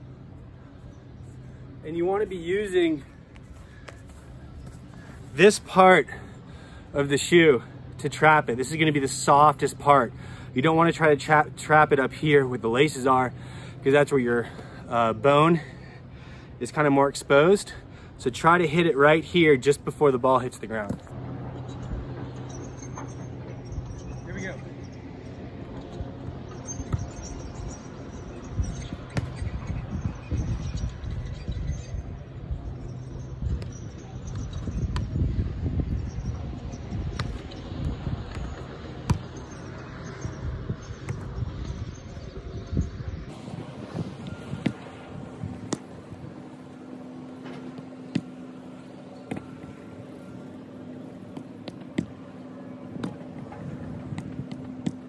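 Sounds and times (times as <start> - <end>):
low hum: 0.0 - 9.1, 20.9 - 55.0
ball kicked thuds: 29.1 - 29.4, 38.3 - 39.4, 44.6 - 44.9, 45.5 - 45.9, 47.6 - 48.4, 49.3 - 49.7, 51.3 - 52.2, 54.1 - 55.0
ball thudding on foot: 49.3 - 49.6, 51.3 - 52.2, 54.1 - 55.0.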